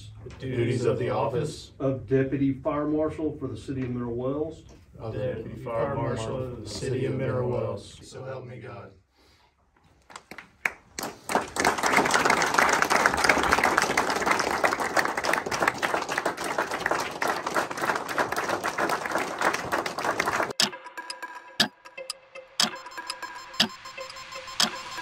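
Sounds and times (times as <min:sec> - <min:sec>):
audience applauding: 0:10.1 - 0:20.7.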